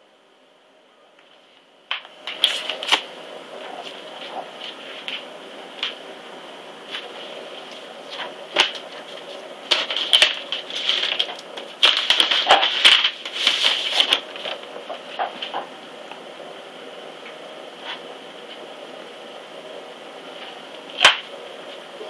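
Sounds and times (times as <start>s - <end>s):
paper envelope rustling: 1.3s - 6.0s, 6.8s - 15.7s.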